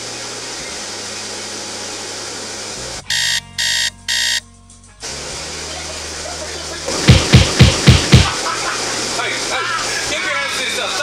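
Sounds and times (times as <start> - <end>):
electronic beeps: 3.1 - 4.4.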